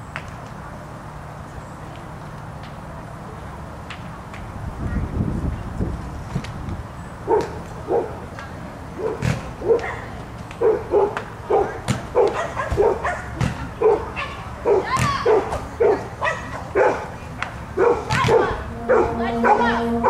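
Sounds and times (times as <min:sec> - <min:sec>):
dog barking: 0:07.3 - 0:08.2, 0:09.0 - 0:17.1, 0:17.8 - 0:19.1.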